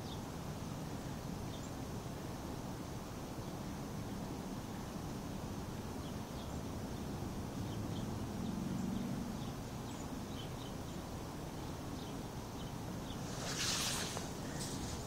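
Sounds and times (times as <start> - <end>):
faint bird chirps: 6.0 - 15.0.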